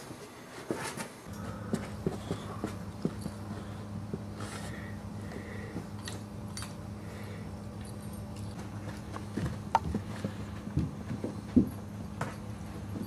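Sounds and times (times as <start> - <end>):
steady low hum: 0.0 - 13.0
dogs scuffling on a mat: 0.5 - 6.7, 8.3 - 13.0
collar hardware jingling: 2.3 - 3.8, 7.8 - 13.0.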